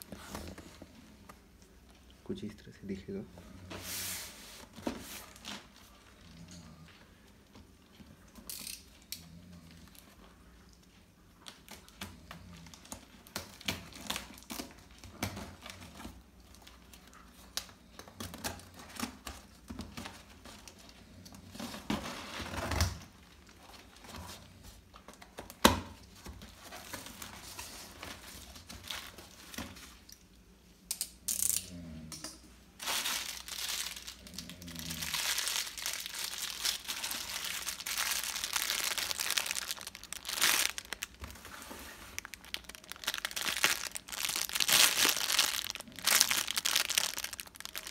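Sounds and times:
plastic wrapping crinkling: 11.4s - 24.3s, 25.0s - 30.1s, 32.8s - 47.9s
packing tape ripping: 32.8s - 41.3s, 42.2s - 47.9s.

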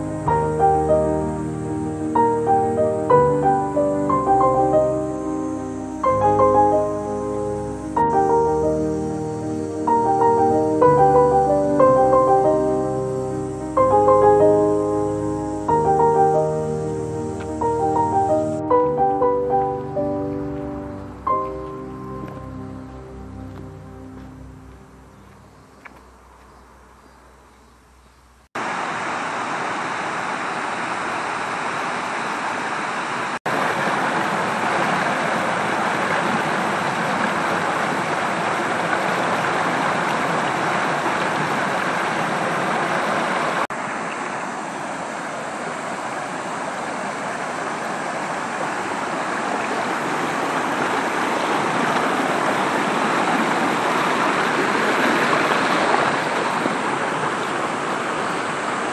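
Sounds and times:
river water rushing over stones: 28.6s - 58.9s.

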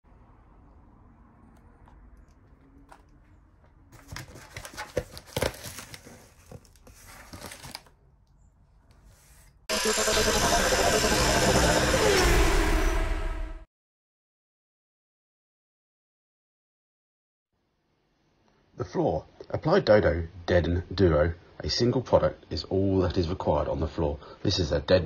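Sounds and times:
cardboard and plastic crinkling: 1.5s - 8.0s
intro sound effect: 9.7s - 13.7s.

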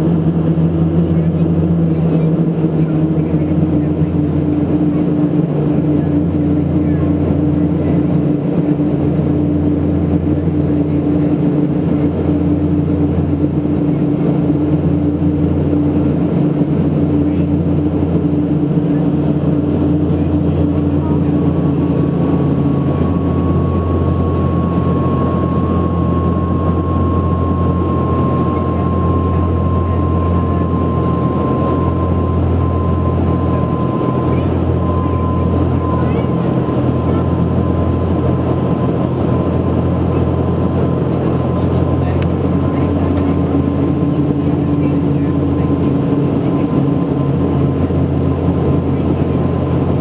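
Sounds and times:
low steady hum: 0.0s - 50.0s
propeller and engine drone: 0.0s - 50.0s.

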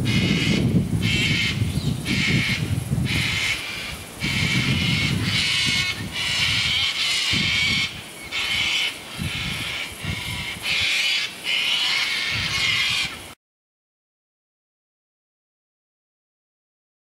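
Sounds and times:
birds screeching calls: 0.0s - 13.4s.

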